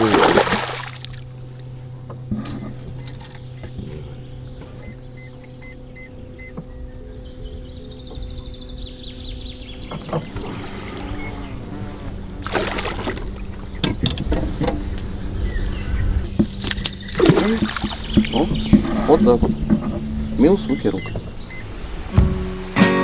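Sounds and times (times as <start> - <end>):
fish splashing at surface: 0.0 - 1.3, 12.4 - 13.4, 16.7 - 18.3
boat motor humming: 0.0 - 23.0.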